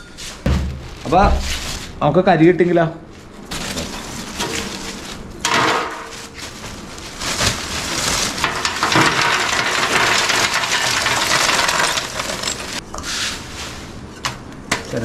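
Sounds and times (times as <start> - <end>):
charcoal clattering into metal box: 3.5 - 12.8.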